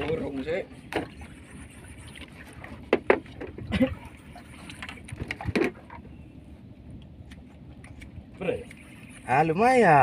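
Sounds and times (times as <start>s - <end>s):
sea wash: 0.0s - 6.7s, 7.3s - 10.0s
wind: 0.0s - 10.0s
sharp knocks on boat: 2.9s - 3.8s, 5.2s - 6.0s.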